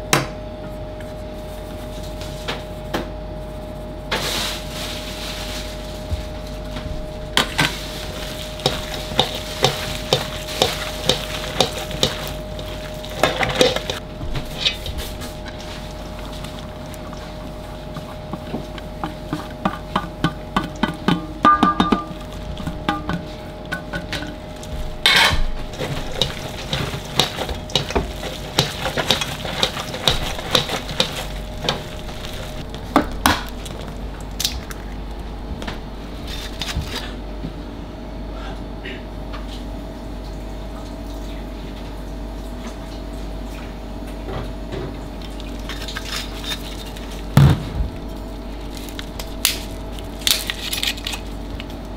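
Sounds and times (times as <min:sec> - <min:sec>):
kitchen hum: 0:00.0 - 0:51.9
hand kneading wet mixture: 0:06.2 - 0:21.2, 0:25.6 - 0:37.1
metal bowl knocking on steel rim: 0:19.0 - 0:22.2, 0:22.8 - 0:24.3.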